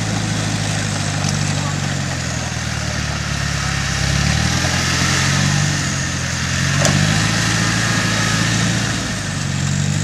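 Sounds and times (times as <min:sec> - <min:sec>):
engine running at low revs: 0:00.0 - 0:10.0.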